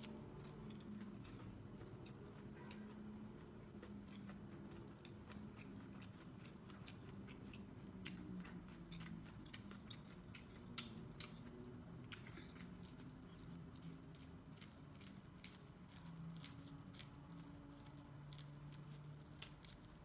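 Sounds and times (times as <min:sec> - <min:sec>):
person chewing corn on the cob: 0:00.0 - 0:20.0.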